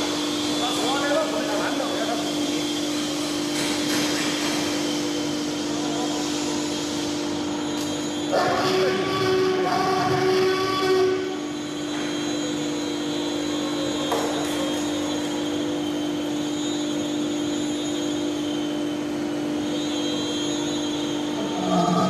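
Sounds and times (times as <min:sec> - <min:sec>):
electric motor hum: 0:04.8 - 0:22.0.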